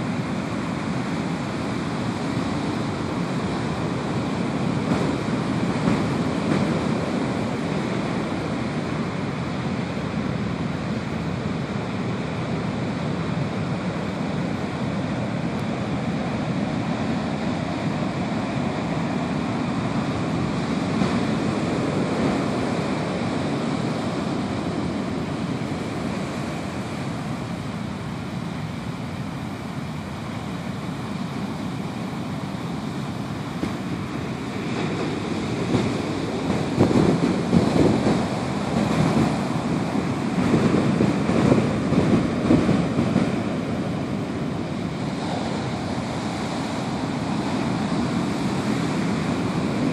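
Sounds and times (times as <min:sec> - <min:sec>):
large waves breaking: 0:00.0 - 0:49.9
foam washing up sandy beach: 0:29.2 - 0:49.9.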